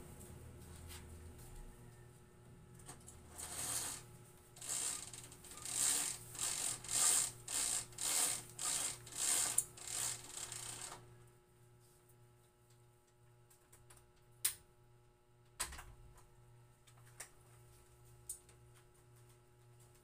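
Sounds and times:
blind bead chain rattling: 4.6 - 11.0.

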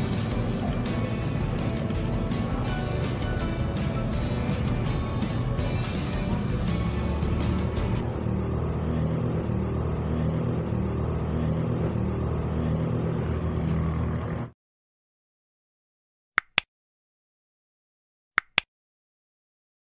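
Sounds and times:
loud rumbling motor hum: 0.0 - 14.6
mouse clicks: 16.4 - 16.7, 18.4 - 18.7.

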